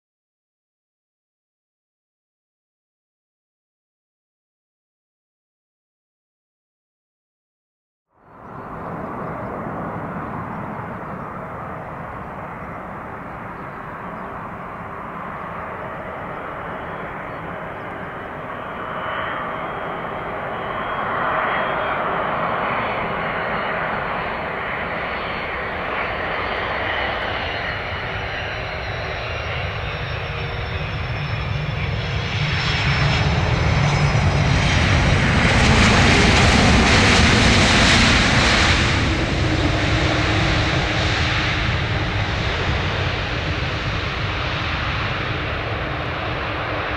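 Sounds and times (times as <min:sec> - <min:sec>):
jet engines rumbling and whining: 0:08.2 - 0:46.9.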